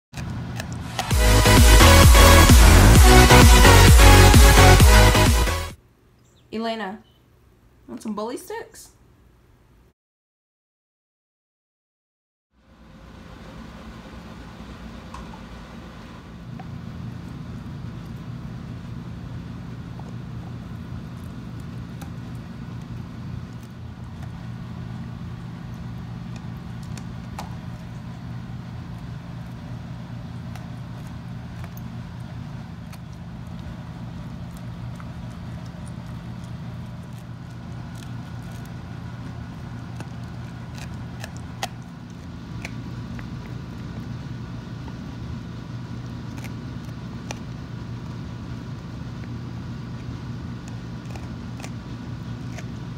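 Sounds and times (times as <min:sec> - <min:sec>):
chewing clicks: 0:00.2 - 0:02.8, 0:19.7 - 0:45.0, 0:45.8 - 0:49.4, 0:50.0 - 0:52.9
dog gnawing on a chew: 0:00.2 - 0:04.6, 0:16.4 - 0:52.9
steady low hum: 0:00.2 - 0:08.0, 0:12.6 - 0:52.9.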